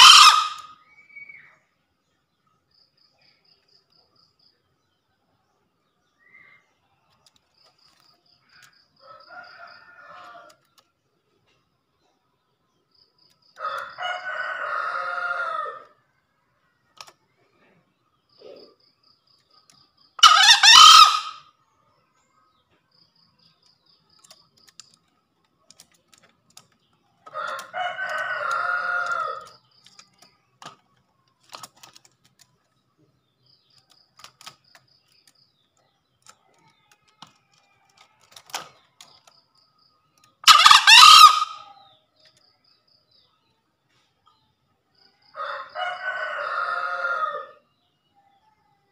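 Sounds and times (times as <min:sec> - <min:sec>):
junglefowl crowing: 0:00.0 - 0:00.8, 0:13.6 - 0:16.0, 0:20.2 - 0:21.5, 0:27.3 - 0:29.6, 0:40.4 - 0:41.8, 0:45.4 - 0:47.6.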